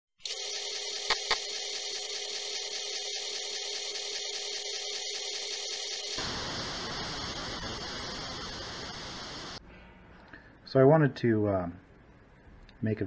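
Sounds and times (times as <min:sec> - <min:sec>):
floppy disk drive motor whir: 0:00.3 - 0:09.6.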